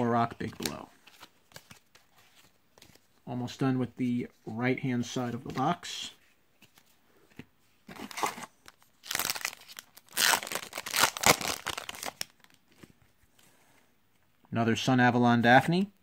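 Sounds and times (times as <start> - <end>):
foil wrapper crinkling and tearing: 8.2 - 12.6.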